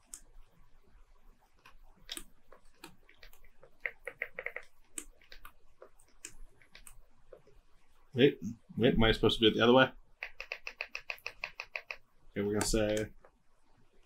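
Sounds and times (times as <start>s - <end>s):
small clicks and taps: 0.0s - 0.3s, 1.6s - 7.5s, 10.2s - 13.4s.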